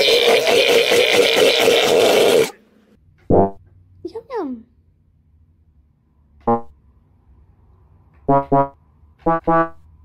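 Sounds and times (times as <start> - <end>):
electronic keyboard notes: 6.4 - 6.8, 8.3 - 9.9.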